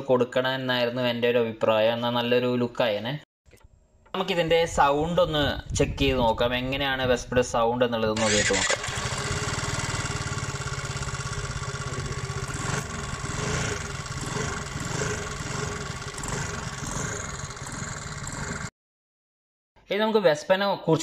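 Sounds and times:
scooter engine idling and revving: 8.2s - 18.7s.

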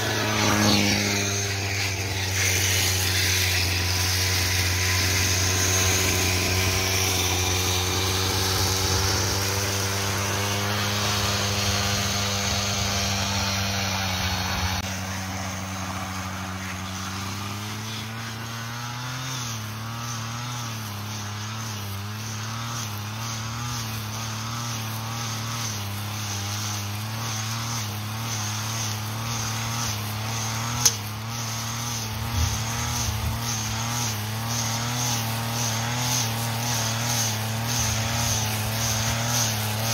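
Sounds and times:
brush cutter engine cutting grass: 0.0s - 39.9s
sharp click: 30.8s - 31.0s.

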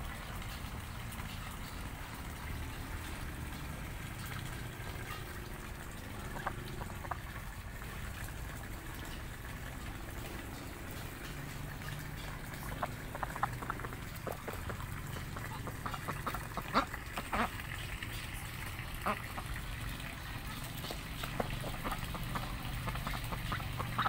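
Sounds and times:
ducks calling softly: 4.2s - 7.5s, 10.0s - 24.0s.

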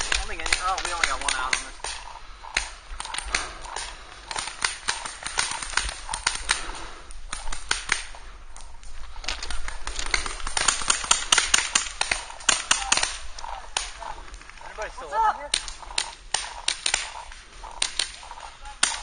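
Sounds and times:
paintball markers firing: 0.0s - 14.7s, 15.4s - 19.0s.

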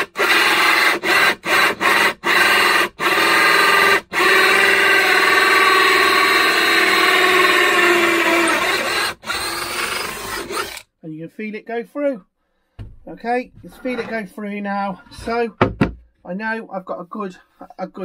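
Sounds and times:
drill cutting with a hole saw: 0.0s - 10.8s.

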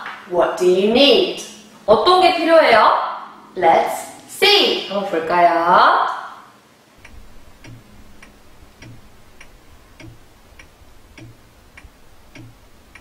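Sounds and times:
clock ticking: 7.0s - 13.0s.

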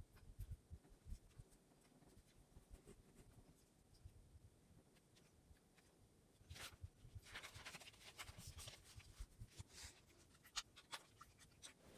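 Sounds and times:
paper rustling: 5.0s - 11.9s.

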